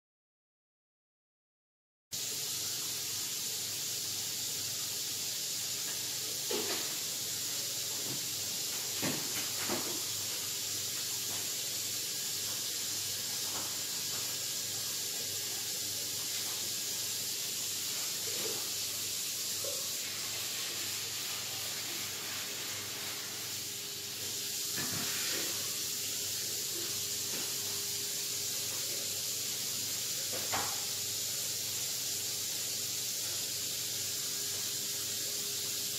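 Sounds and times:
steady high hiss: 0:02.2 - 0:35.9.

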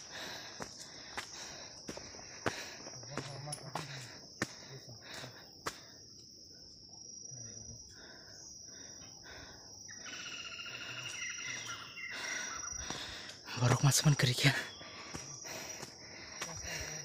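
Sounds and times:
high-pitched insect trill: 0:00.0 - 0:17.0
bird calling: 0:09.9 - 0:13.2.

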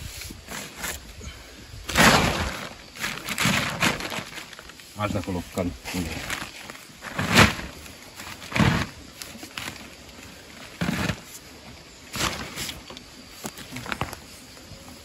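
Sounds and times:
shovel scraping soil: 0:00.0 - 0:01.1, 0:01.9 - 0:04.7, 0:05.9 - 0:10.0, 0:10.6 - 0:11.4, 0:12.1 - 0:12.9
soil dumping against wall: 0:01.9 - 0:04.6, 0:05.9 - 0:09.9, 0:10.6 - 0:11.4.

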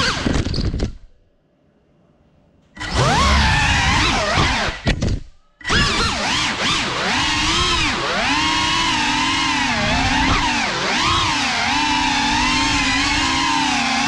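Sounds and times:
drone motors whining: 0:02.8 - 0:05.0, 0:05.6 - 0:14.0.

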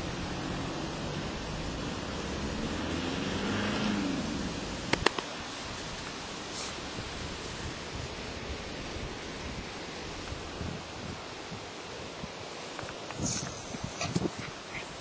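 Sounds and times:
outdoor background noise: 0:00.0 - 0:15.0
sharp clicks: 0:04.9 - 0:05.3.

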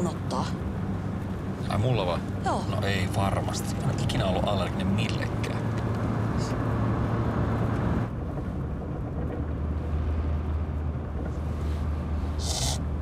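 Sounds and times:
car engine and road noise: 0:00.0 - 0:13.0
hissing sniff: 0:11.6 - 0:12.9.

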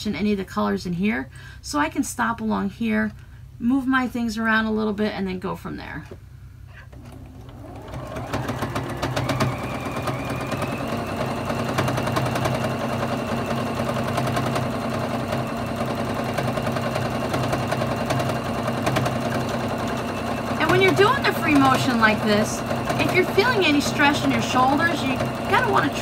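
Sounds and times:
sewing machine stitching: 0:07.0 - 0:26.0.

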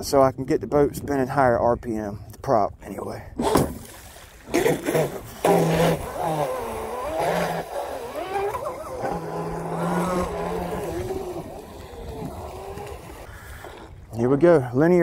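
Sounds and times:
rc speedboat motor whining: 0:04.8 - 0:13.8.

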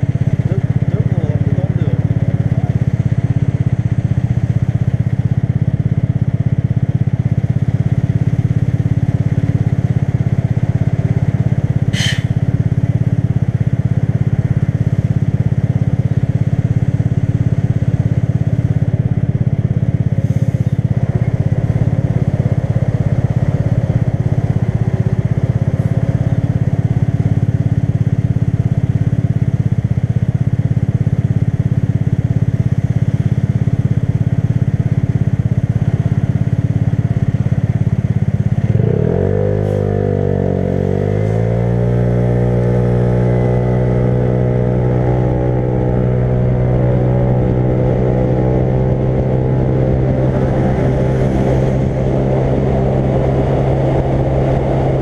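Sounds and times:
motorcycle engine droning: 0:00.0 - 0:55.0
sharp high-pitched sound: 0:11.9 - 0:12.4.

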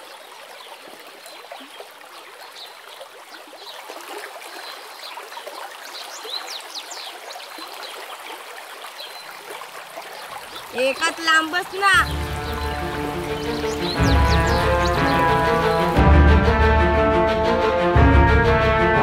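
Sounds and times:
stream trickling over stones: 0:00.0 - 0:16.0.

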